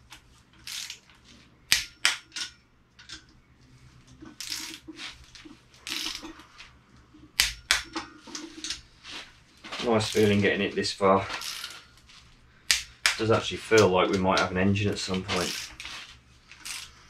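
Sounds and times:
ratchet rasping: 11.4 - 11.8, 15.3 - 15.9, 16.5 - 17.0
torque wrench clicks: 16.6 - 16.9.

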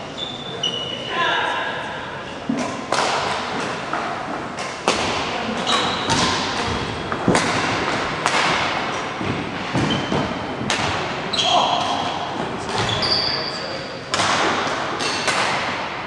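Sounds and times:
sharp echoing thuds: 6.0 - 13.0.

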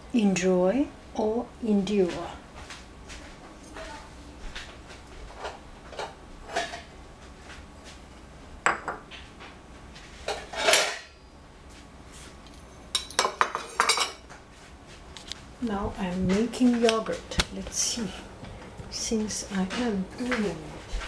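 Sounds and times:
ceramic bowls knocking on tiles: 8.6 - 9.1
metal spoons clinking on a bowl: 12.5 - 14.2.

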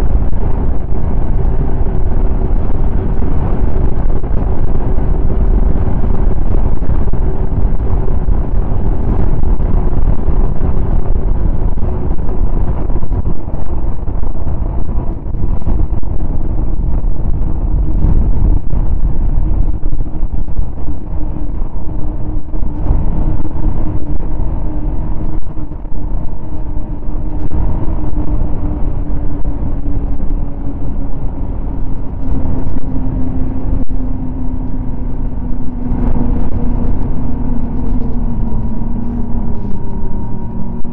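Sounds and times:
low rumble: 0.0 - 40.9
snowmobile engine at speed: 0.0 - 40.9.

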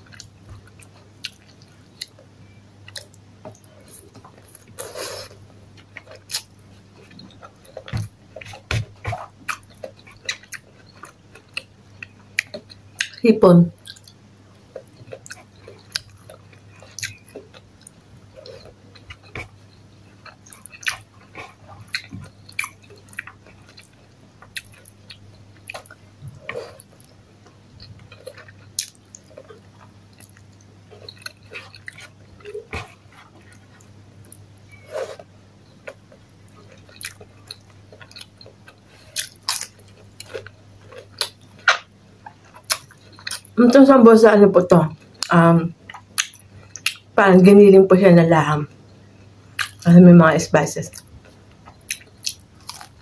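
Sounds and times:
faint low hum: 0.0 - 53.0
person chewing and biting: 4.4 - 13.2, 13.8 - 19.6, 20.2 - 27.1, 27.8 - 43.6, 51.0 - 53.0.

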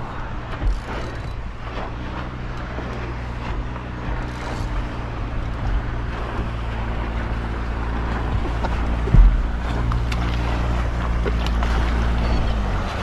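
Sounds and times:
boat engine running: 0.0 - 13.0
water noise: 0.0 - 13.0
wind: 0.0 - 13.0.

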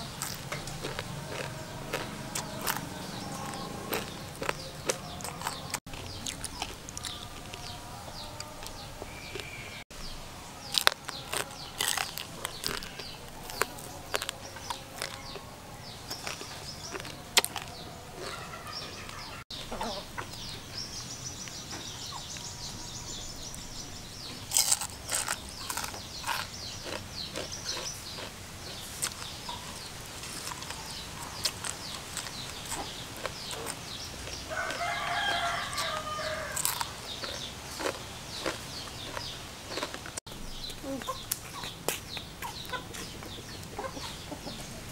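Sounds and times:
chickens clucking: 0.0 - 9.8, 10.6 - 44.9
crunching of crispy food: 0.0 - 9.8, 10.6 - 20.4, 24.4 - 40.2
rooster crowing: 34.4 - 37.0.

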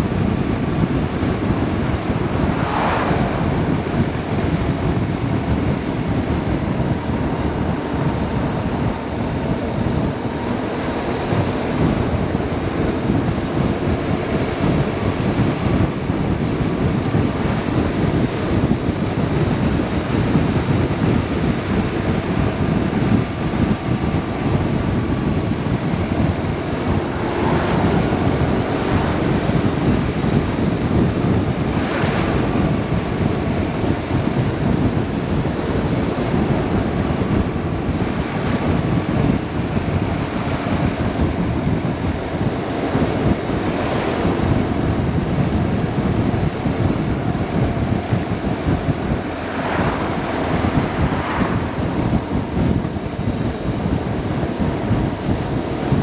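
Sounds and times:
wind buffeting microphone: 0.0 - 56.0
motorcycle engine cruising: 23.8 - 34.9.

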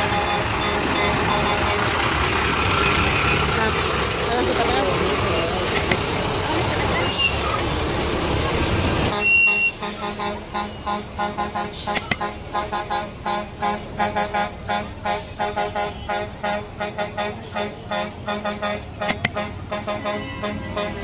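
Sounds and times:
vehicle horns tooting: 12.8 - 21.0.

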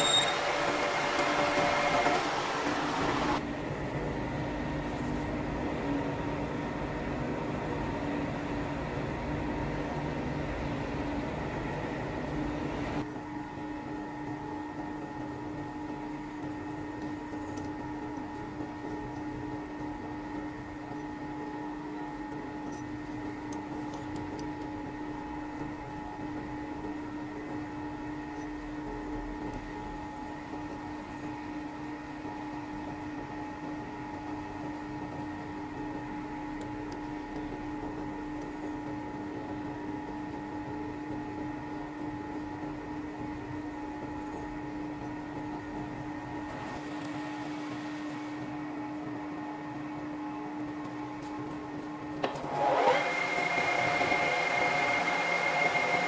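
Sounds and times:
lathe motor humming: 0.0 - 3.5, 15.8 - 56.0.

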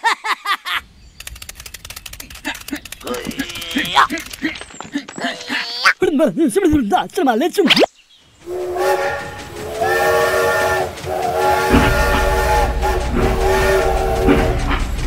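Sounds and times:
low rumble of running train: 8.3 - 15.0
toy train whistle: 8.5 - 15.0.

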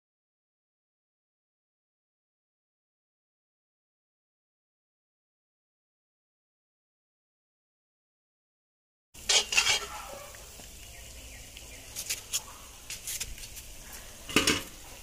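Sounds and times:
metal spoon scraping in a wok: 9.2 - 10.5
faint steady sizzle: 9.2 - 15.0.

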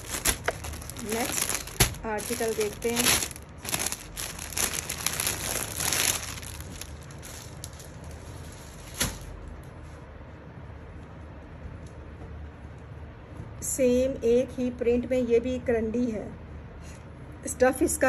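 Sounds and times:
plastic packaging crinkling: 0.0 - 9.4.

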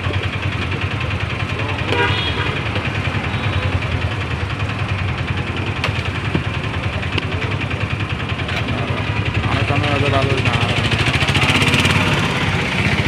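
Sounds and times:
engine idling: 0.0 - 13.0
street traffic noise: 0.0 - 13.0.

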